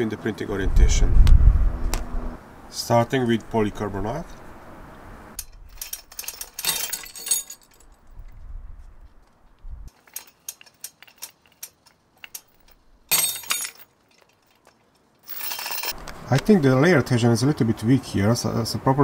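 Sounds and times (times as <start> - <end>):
hardware dropping and rattling: 5.4 - 8.0, 9.9 - 16.0
chain and shackles clinking: 5.4 - 8.4, 9.9 - 16.0.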